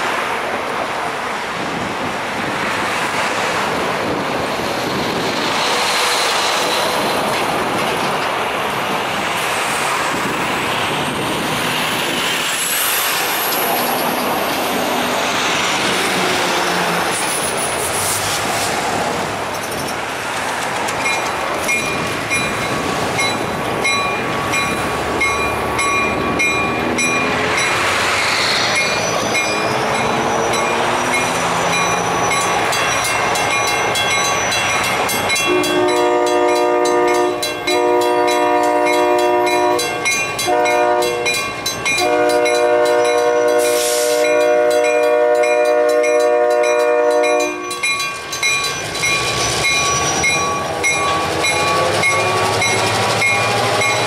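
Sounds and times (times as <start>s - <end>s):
vehicles passing over crossing: 13.2s - 43.6s
crossing bell ringing: 21.0s - 28.1s, 28.7s - 54.0s
locomotive air horn blasts: 35.5s - 39.9s, 40.5s - 41.3s, 42.0s - 47.7s.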